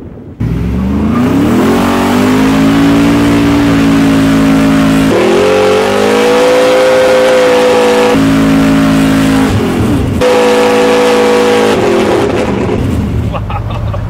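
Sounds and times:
engine revving hard: 0.4 - 12.8.

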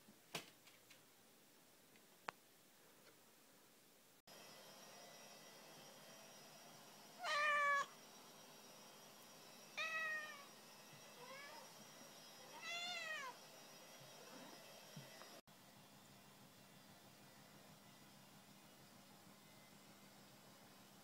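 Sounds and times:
cat meowing: 7.2 - 7.9.

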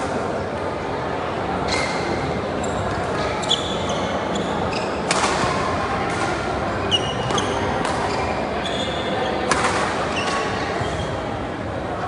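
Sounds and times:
shoes squeaking on court: 1.7 - 5.1, 6.9 - 9.5, 10.1 - 11.2
racket hitting shuttlecock: 5.0 - 6.4, 7.2 - 8.1, 9.5 - 10.6.

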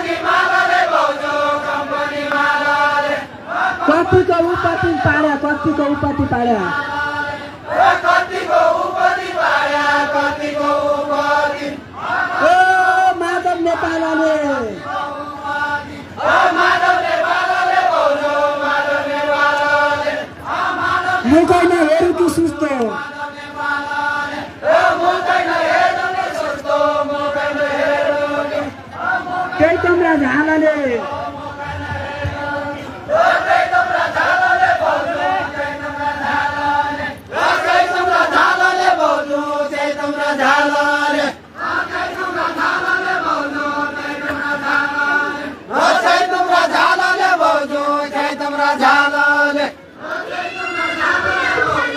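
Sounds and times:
voices singing folk song together: 0.0 - 13.4, 14.4 - 30.2, 30.8 - 51.9
men singing folk song: 31.1 - 51.9.

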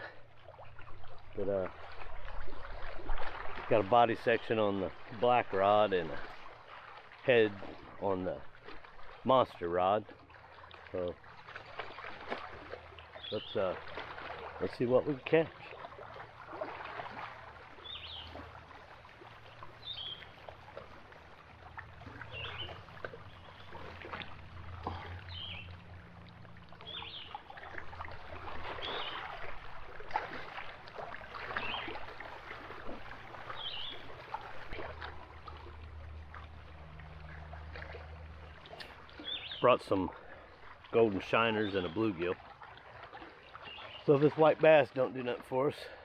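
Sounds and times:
waves lapping on rocks: 0.0 - 46.0
bird chirping: 22.3 - 23.8, 25.2 - 25.8, 26.8 - 27.4, 39.2 - 39.6.

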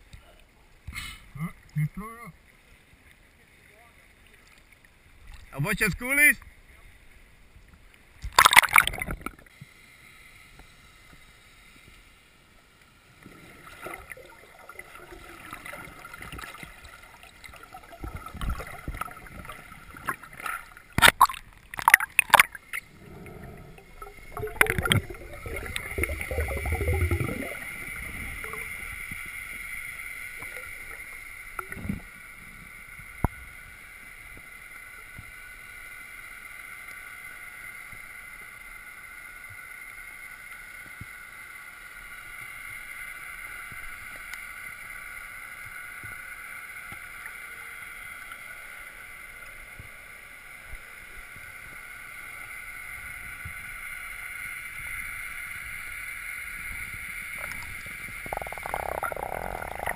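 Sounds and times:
water sloshing and splashing: 8.2 - 9.4, 13.2 - 29.2
muffled underwater hum: 22.2 - 32.8.

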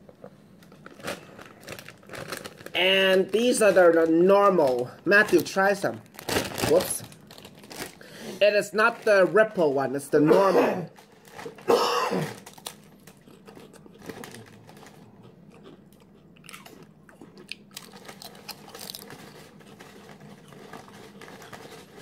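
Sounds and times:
potato chip crunching: 0.7 - 22.0
chewing crunches: 11.1 - 22.0.

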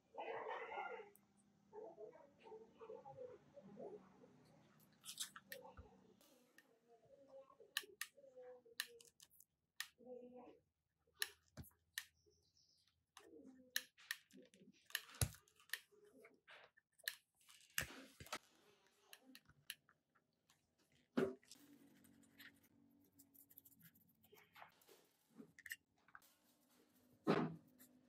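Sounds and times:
toothbrush scrubbing circuit board: 21.6 - 24.5.

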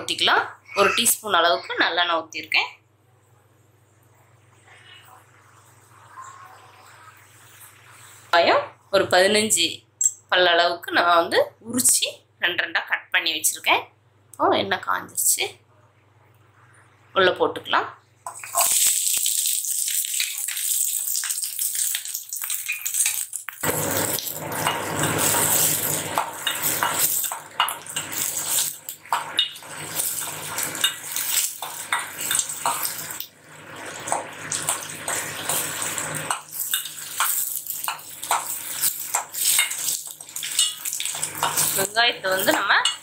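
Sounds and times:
onions sizzling in oil: 18.3 - 42.9
metal spatula scraping a pan: 24.4 - 33.0, 34.1 - 43.0.

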